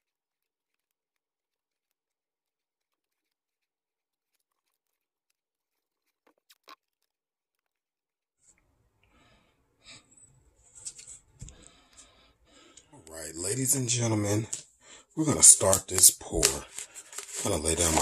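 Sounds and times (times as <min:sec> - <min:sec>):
faint tape handling sounds: 0:10.6 - 0:18.0.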